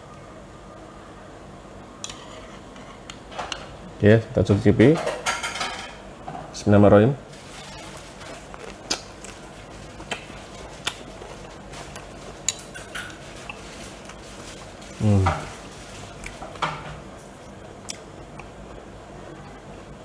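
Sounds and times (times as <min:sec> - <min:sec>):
person humming while chewing: 0:08.2 - 0:12.6, 0:14.8 - 0:15.4.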